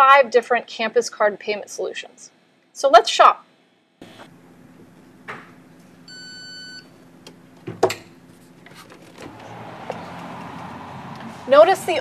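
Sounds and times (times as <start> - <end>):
card reader beep: 6.1 - 6.9.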